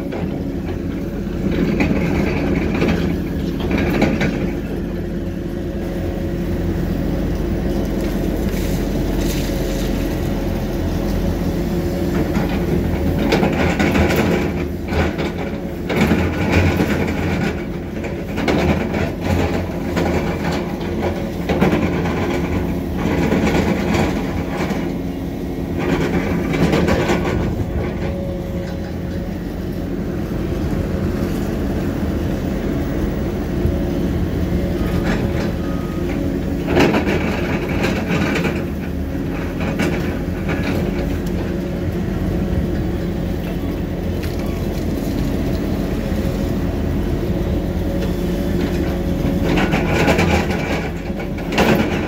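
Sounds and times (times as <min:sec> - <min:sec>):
machinery engine running: 0:00.0 - 0:52.0
metal clanking and rattling: 0:25.7 - 0:29.3.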